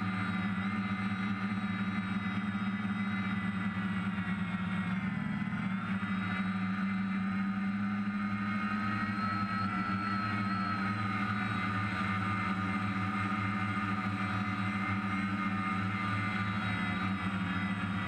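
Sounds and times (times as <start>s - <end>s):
drone motors and propellers whining: 0.0s - 18.0s.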